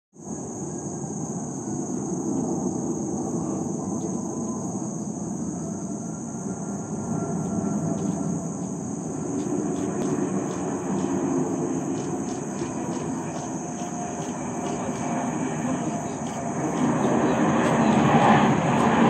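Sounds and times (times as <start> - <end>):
distant jet engine rumble: 0.2 - 19.0
high-pitched insect buzz: 0.3 - 19.0.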